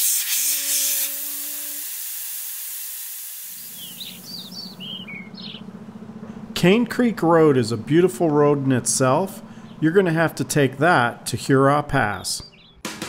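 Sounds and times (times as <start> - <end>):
air hissing from tyre valve: 0.0 - 3.8
birds chirping: 3.6 - 6.2, 9.4 - 10.2, 12.0 - 12.8.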